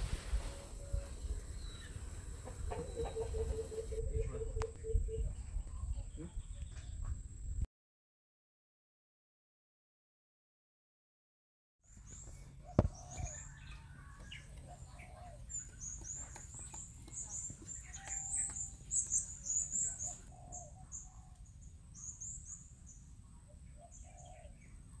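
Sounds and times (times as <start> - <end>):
small birds chirping: 0.5 - 7.1, 11.8 - 25.0.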